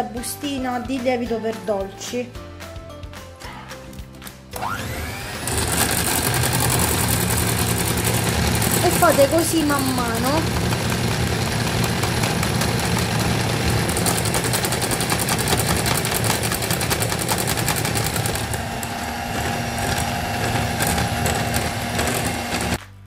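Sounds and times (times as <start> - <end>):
electric hand mixer running: 4.6 - 22.8.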